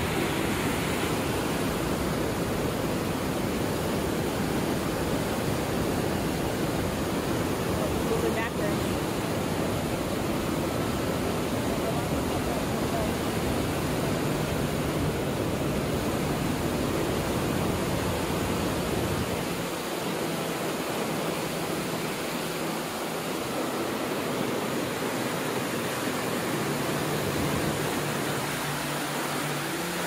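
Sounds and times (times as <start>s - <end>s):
steady rushing noise: 0.0s - 30.0s.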